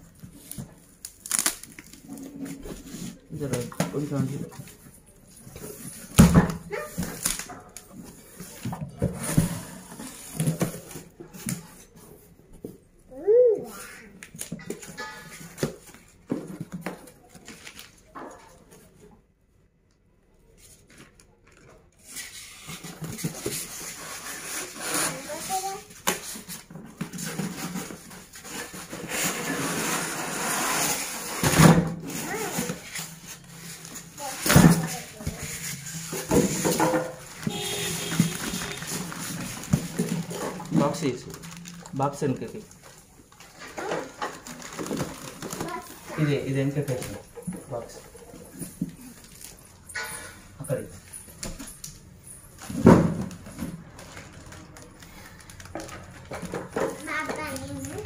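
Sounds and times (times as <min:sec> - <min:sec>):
cardboard flaps rustling and scraping: 0:00.1 - 0:12.9, 0:22.0 - 0:49.7.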